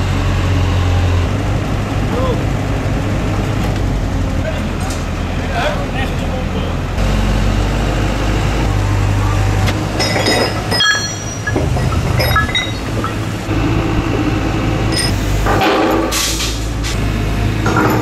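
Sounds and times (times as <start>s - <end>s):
truck engine running: 0.0s - 18.0s
steel parts clanking: 9.8s - 16.6s.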